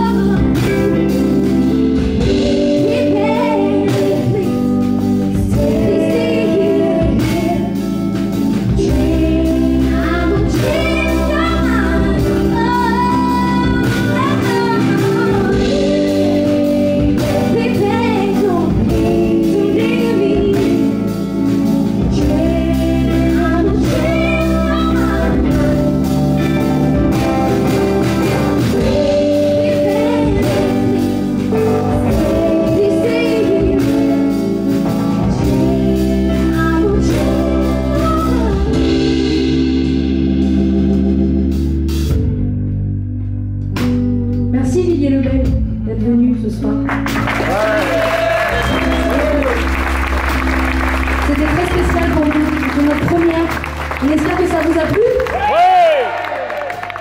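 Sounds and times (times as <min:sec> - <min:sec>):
woman singing: 0:00.0 - 0:26.6, 0:28.6 - 0:40.1, 0:51.2 - 0:55.3
electric guitar: 0:00.0 - 0:57.0
live band playing: 0:00.0 - 0:57.0.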